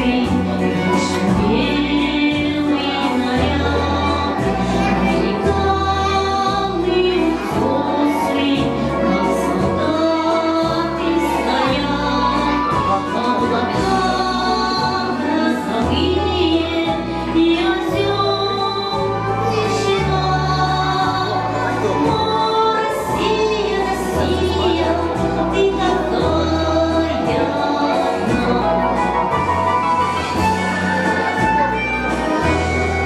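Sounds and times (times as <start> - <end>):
woman singing into microphone: 0.0 - 30.4
instrumental accompaniment with bass: 0.0 - 33.0.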